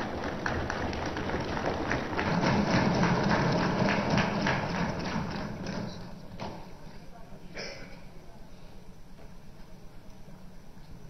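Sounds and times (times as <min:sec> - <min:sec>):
people thumping desks: 0:00.0 - 0:06.7.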